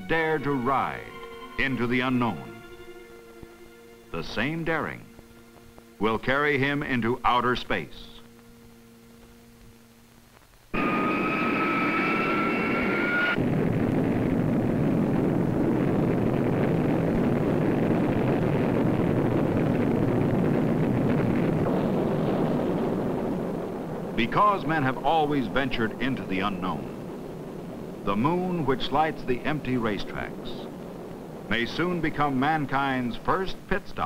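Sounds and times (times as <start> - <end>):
faint hum: 0.0 - 34.0
rocket engine roar: 10.7 - 34.0
high rising whistling tones: 10.8 - 13.4, 24.1 - 33.4.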